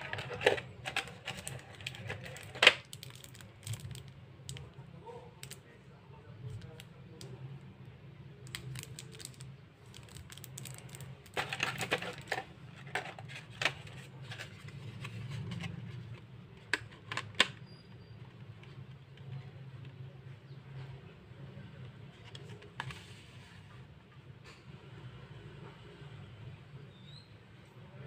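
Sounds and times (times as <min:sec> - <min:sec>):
pencils clicking and rattling: 0:00.0 - 0:04.6, 0:08.4 - 0:15.7.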